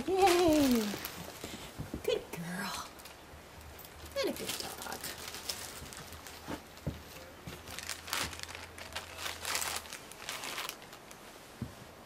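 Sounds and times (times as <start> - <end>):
rustling and crinkling: 0.0 - 12.0.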